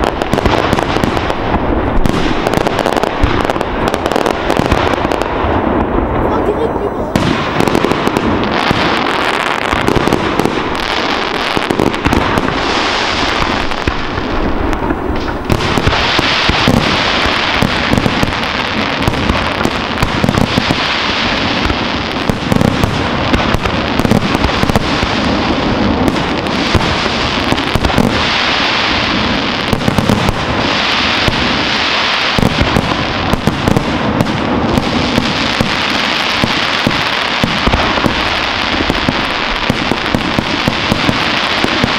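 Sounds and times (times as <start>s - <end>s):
crackling firework stars: 0.0s - 41.9s
firework shells bursting: 7.1s - 29.1s.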